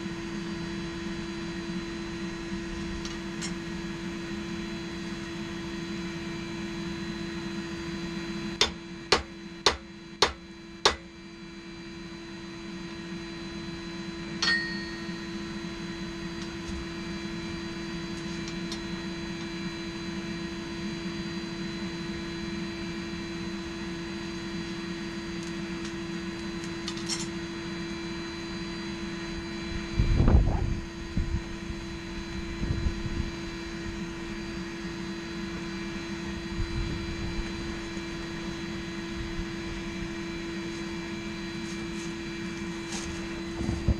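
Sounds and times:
steady hum: 0.0s - 43.9s
hammer striking metal on anvil: 8.6s - 11.1s, 14.4s - 15.2s.

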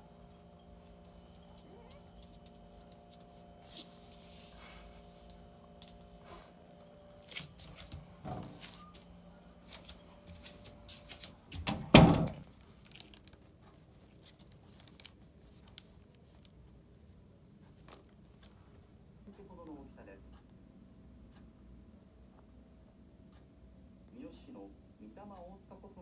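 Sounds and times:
faint steady hum: 0.0s - 26.0s
faint handling noise: 12.4s - 16.8s.

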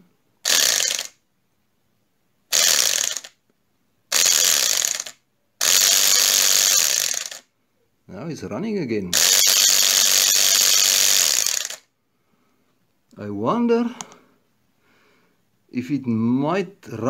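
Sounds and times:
electric compressor motor spinning: 0.5s - 1.1s, 2.5s - 3.3s, 4.1s - 7.4s, 9.2s - 11.8s.

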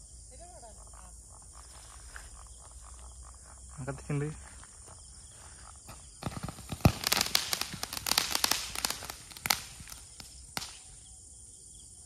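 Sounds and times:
rockets crackling and popping: 5.6s - 11.1s.

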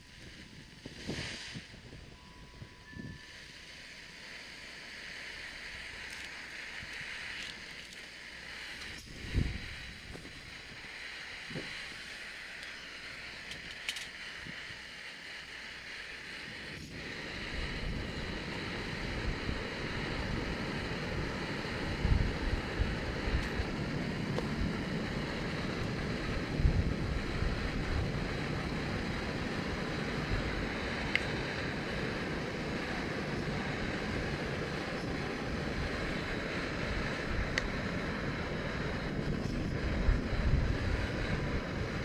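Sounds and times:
wind buffeting the microphone: 0.0s - 3.4s, 8.4s - 12.0s, 16.3s - 42.0s
steady high hiss: 0.0s - 42.0s.

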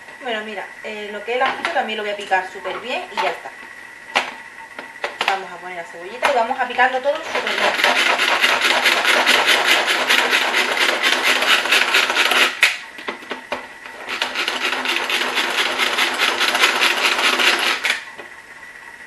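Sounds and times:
food chopper blades whirring: 6.2s - 18.2s.

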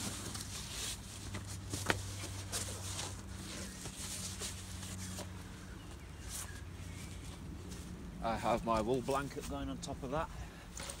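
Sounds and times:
tent fabric rustling: 0.0s - 8.0s.

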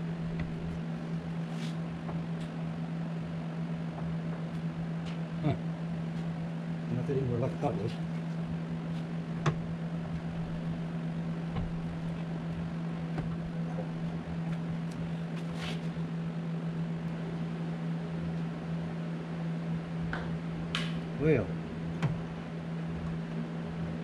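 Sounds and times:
steady low hum: 0.0s - 24.0s
radiator clicks and knocks: 0.2s - 0.8s, 9.3s - 15.0s, 21.9s - 23.3s.

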